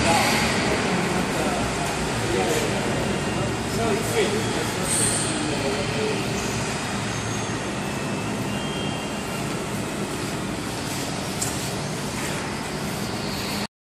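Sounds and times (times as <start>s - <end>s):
machine mechanical noise: 0.0s - 13.7s.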